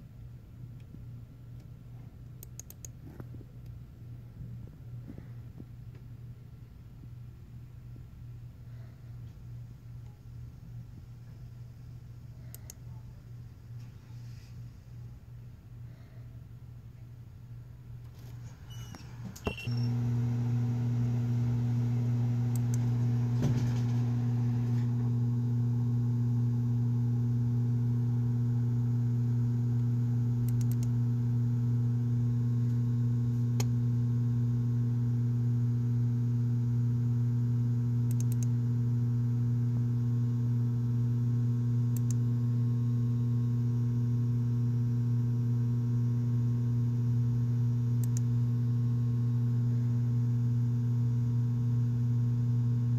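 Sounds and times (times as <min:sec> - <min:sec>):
faint clicks: 0:02.3 - 0:03.0, 0:12.5 - 0:12.8, 0:29.8 - 0:30.9, 0:38.1 - 0:38.5, 0:41.9 - 0:42.2, 0:48.0 - 0:48.3
loud low hum: 0:19.5 - 0:52.9.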